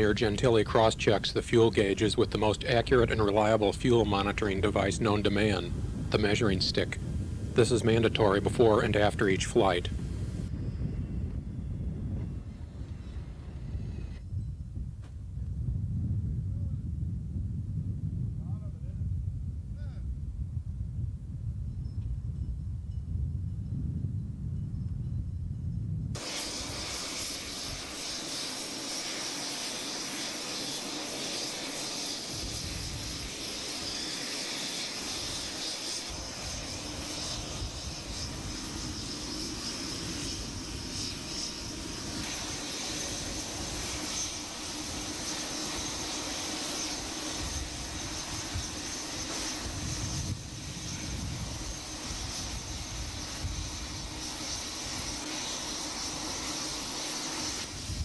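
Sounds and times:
aircraft engines whining: 0.0 - 14.2, 25.9 - 58.0
low rumble: 2.6 - 26.2.

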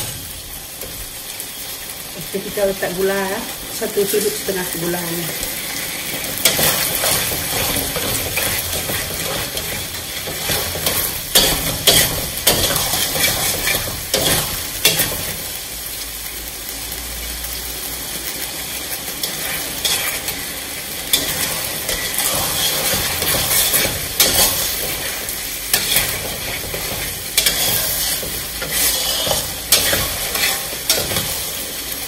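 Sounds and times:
sauce sizzling: 0.0 - 32.0
spatula scraping a wok: 3.8 - 15.7, 19.0 - 32.0.

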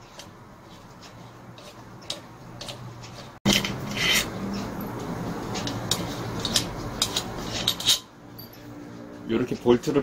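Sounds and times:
metal scraping and rubbing: 0.0 - 10.0
sharp metal clinks: 8.3 - 8.7.

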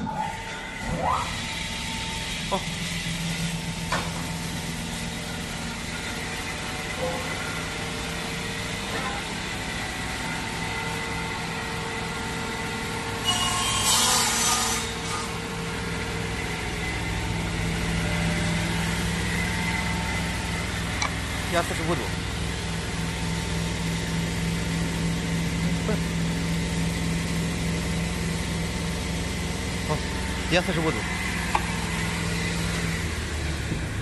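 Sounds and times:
panel saw humming and whining: 0.0 - 34.0
saw blade cutting board: 13.2 - 15.4.

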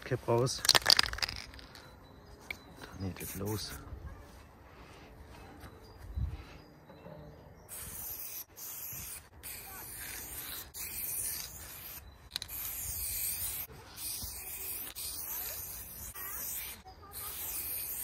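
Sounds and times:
spray paint can hissing: 0.6 - 1.7, 7.7 - 18.0.

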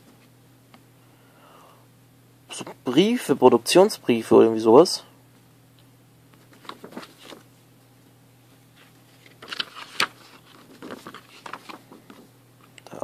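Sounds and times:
paper rustling and crinkling: 6.4 - 7.5, 8.8 - 12.3.

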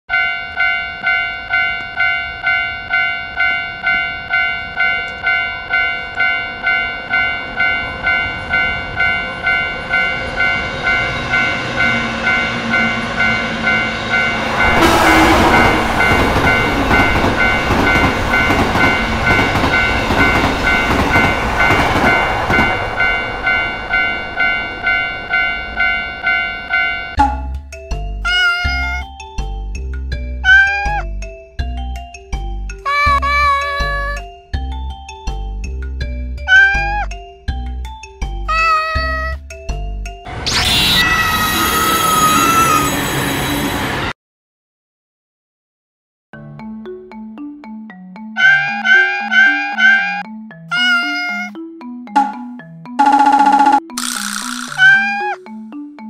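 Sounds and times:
electric train passing: 0.1 - 27.2, 40.3 - 44.2
railway crossing bell ringing: 0.1 - 27.4, 41.4 - 44.1, 48.4 - 51.5, 52.2 - 53.8, 54.8 - 55.4.

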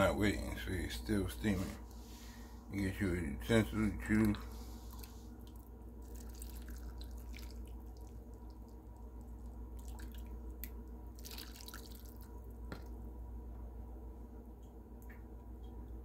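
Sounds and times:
steady low hum: 0.0 - 16.0
broth pouring and splashing: 4.1 - 12.5.

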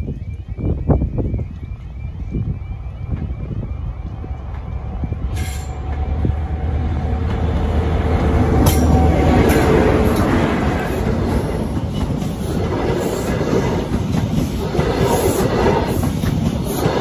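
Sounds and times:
diesel locomotive engines humming: 0.0 - 17.0
wheels clicking over rail joints: 7.2 - 17.0.

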